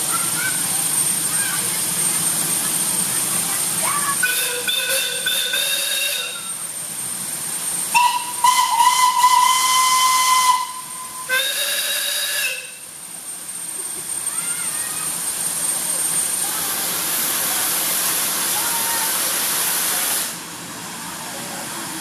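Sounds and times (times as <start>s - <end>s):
steam locomotive whistle blasts: 4.2s - 6.6s, 7.9s - 12.9s.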